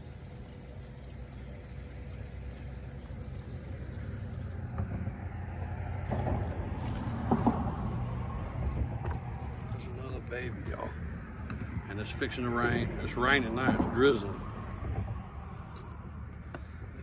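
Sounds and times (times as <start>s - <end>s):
low steady rumble: 0.0s - 17.0s
sharp splash and knock: 6.0s - 8.1s.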